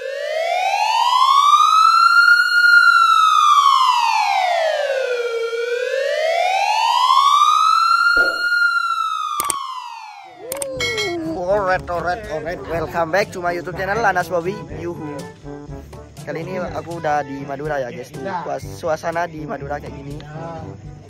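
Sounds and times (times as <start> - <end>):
siren-like wailing tone: 2.5 - 11.3
short clicks: 9.4 - 9.6.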